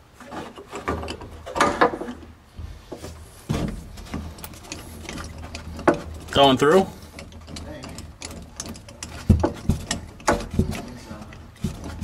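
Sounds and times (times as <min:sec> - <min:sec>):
metal tools clinking and rattling: 0:03.9 - 0:12.0.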